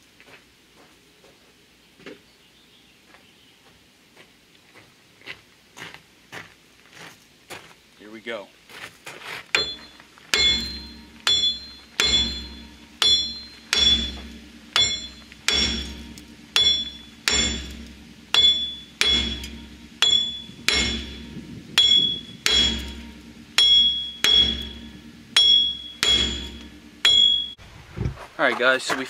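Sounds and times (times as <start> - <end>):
hammer pounding metal: 9.5 - 27.6.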